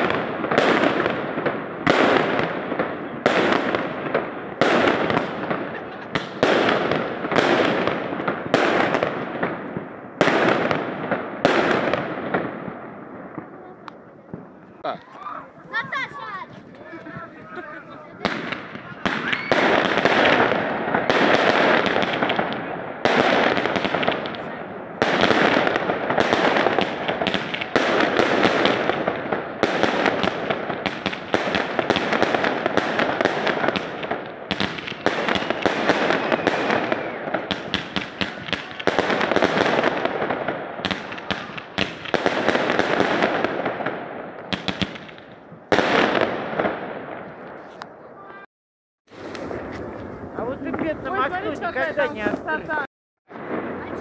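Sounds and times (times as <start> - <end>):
fireworks bangs and crackling: 0.0 - 48.5, 49.1 - 54.0.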